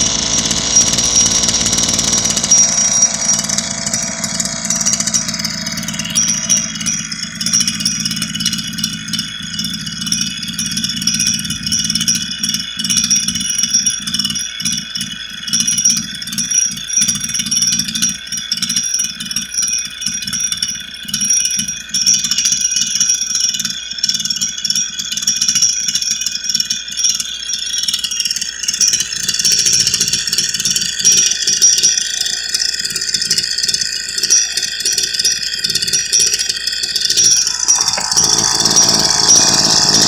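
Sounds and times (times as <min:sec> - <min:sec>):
string trimmer engine idling: 0:00.0 - 0:13.4, 0:27.9 - 0:40.0.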